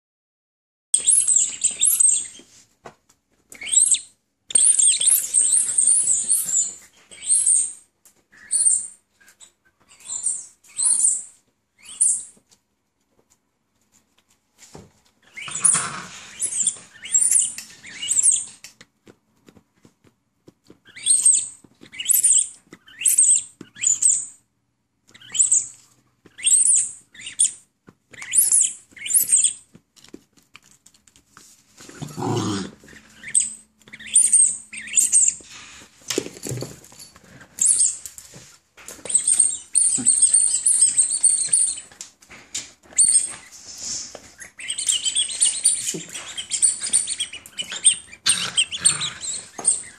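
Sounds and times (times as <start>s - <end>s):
rubber squeaky toy squeaking: 1.0s - 2.6s, 3.5s - 12.4s, 15.2s - 18.6s, 20.7s - 24.4s, 25.0s - 29.8s, 31.9s - 35.6s, 39.0s - 42.0s, 42.8s - 43.5s, 44.4s - 49.9s.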